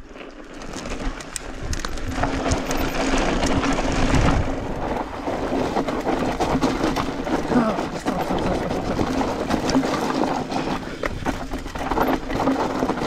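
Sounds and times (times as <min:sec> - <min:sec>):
bike clicks and rattles: 0:00.0 - 0:13.0
bike tyres crunching over rock: 0:00.0 - 0:13.0.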